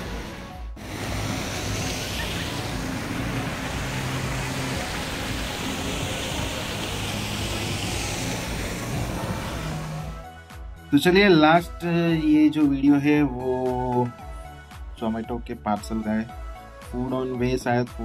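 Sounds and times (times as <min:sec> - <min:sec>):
vehicle road noise: 0:00.0 - 0:10.3.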